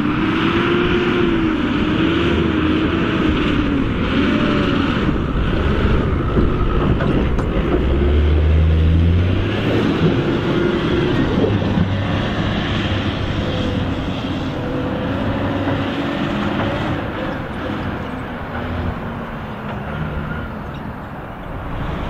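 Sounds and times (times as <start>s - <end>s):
truck diesel engine working hard: 0.0s - 22.0s.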